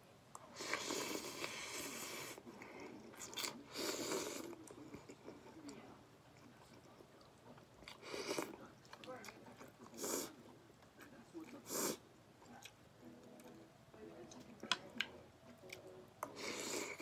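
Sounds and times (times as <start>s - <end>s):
person slurping soup: 0.5s - 4.6s, 16.3s - 17.0s.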